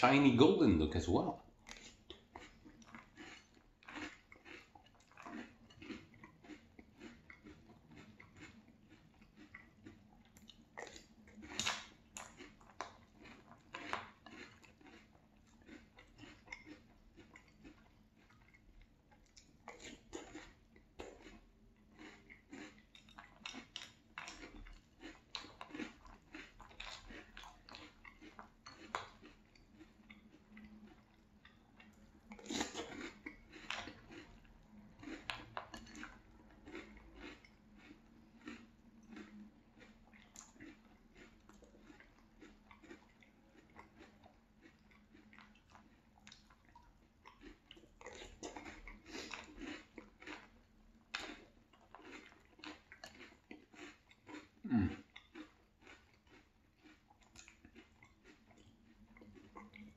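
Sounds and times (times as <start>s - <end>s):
chewing crunchy cereal: 0.0s - 59.9s
mouth sounds: 54.6s - 55.0s.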